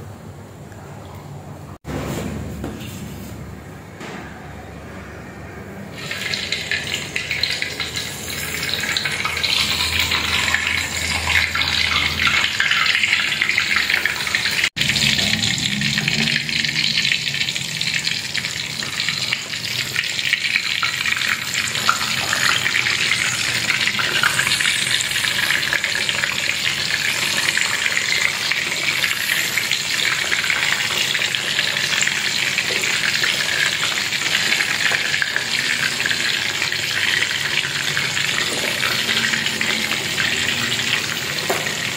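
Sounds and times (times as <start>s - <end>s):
cassava deep-frying in hot oil: 5.9s - 41.9s.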